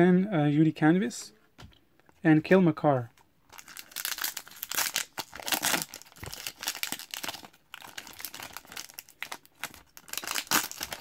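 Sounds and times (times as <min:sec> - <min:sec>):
foil wrapper tearing and crinkling: 0:03.6 - 0:11.0.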